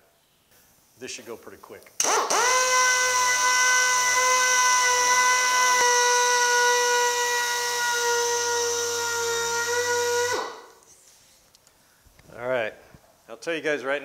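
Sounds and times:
air polisher whine: 2.0s - 10.8s.

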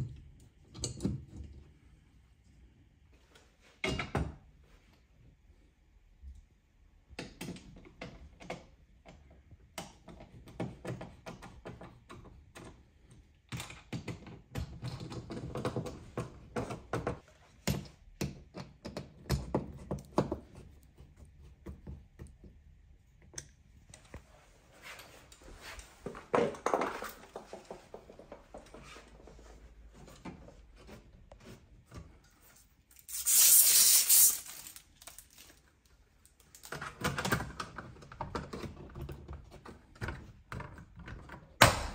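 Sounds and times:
screws scraping: 33.0s - 34.8s.

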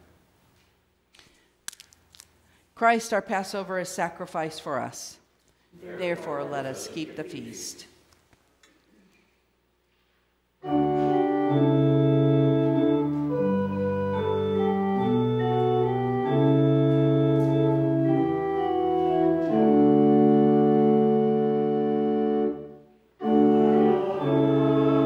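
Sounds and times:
church organ chords: 10.6s - 25.0s.

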